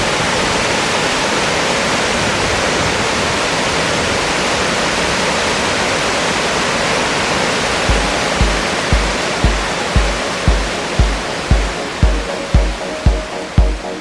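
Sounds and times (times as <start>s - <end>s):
waterfall roaring: 0.0s - 14.0s
music with kick drum beat: 7.9s - 14.0s.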